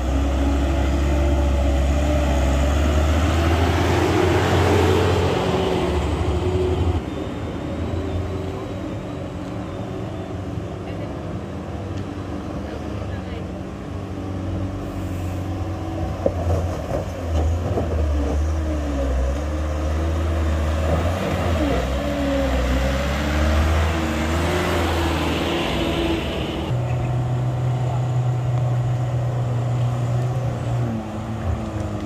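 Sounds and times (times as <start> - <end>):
diesel truck engine labouring: 12.5 - 32.0.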